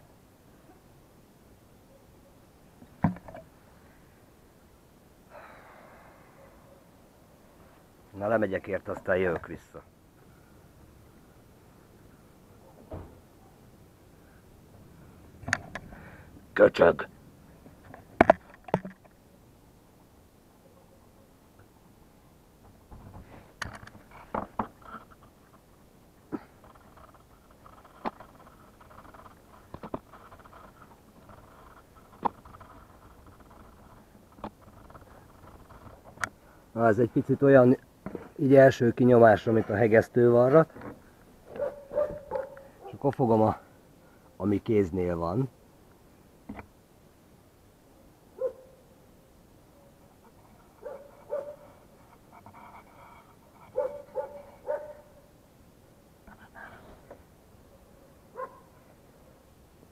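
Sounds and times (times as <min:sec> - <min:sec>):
dog barking faintly: 0:01.8 - 0:02.5, 0:06.2 - 0:07.1, 0:12.6 - 0:13.8, 0:20.6 - 0:21.4, 0:41.5 - 0:43.1, 0:48.4 - 0:48.9, 0:49.7 - 0:51.8, 0:52.4 - 0:55.3, 0:57.6 - 0:58.8.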